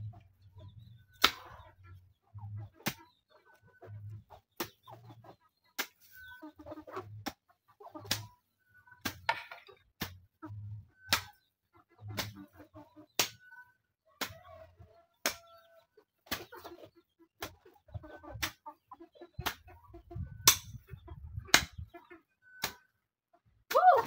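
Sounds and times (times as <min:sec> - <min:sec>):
hens clucking: 0:00.0 - 0:24.0.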